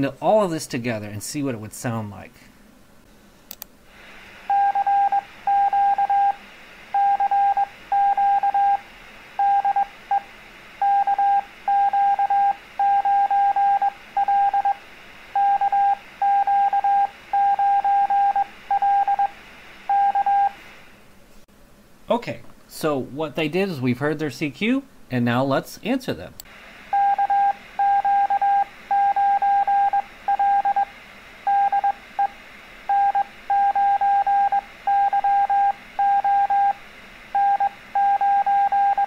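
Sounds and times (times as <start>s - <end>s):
faint steady hiss: 0.0s - 39.0s
morse code tone: 4.5s - 6.4s, 7.0s - 8.8s, 9.4s - 10.2s, 10.8s - 14.8s, 15.4s - 19.3s, 19.9s - 20.6s, 26.9s - 30.9s, 31.5s - 32.3s, 32.9s - 36.8s, 37.4s - 39.0s.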